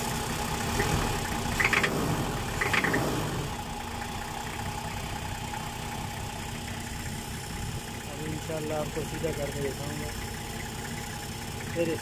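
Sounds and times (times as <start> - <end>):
diesel engine idling: 0.0 - 12.0
high-pitched engine rattles: 0.0 - 12.0.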